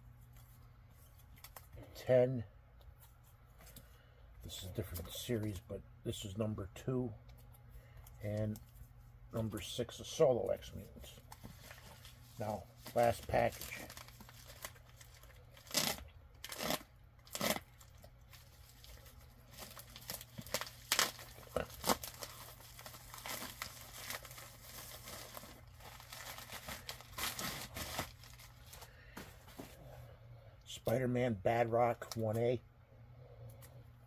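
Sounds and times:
plastic crinkling: 11.3s - 29.0s
plastic bag being torn open: 12.9s - 28.8s.

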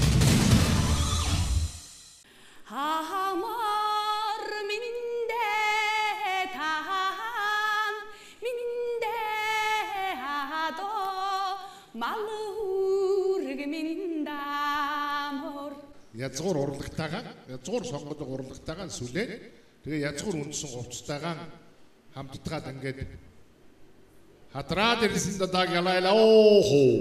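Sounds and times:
woman singing unaccompanied: 2.7s - 16.0s.

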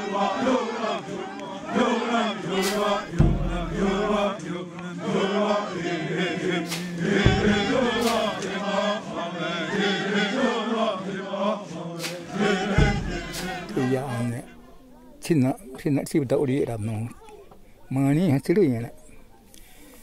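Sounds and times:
group chanting in unison: 0.0s - 14.9s.

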